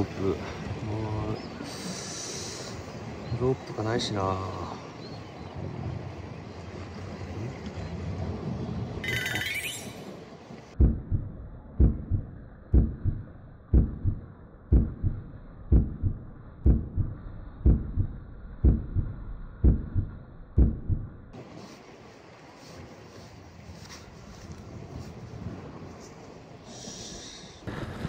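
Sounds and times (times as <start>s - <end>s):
heartbeat double thump: 10.8s - 21.2s.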